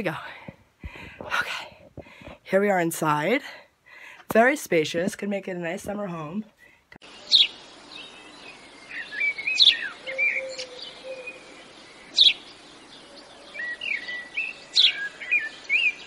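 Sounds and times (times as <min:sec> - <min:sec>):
birds warbling chirps: 0:07.0 - 0:16.0.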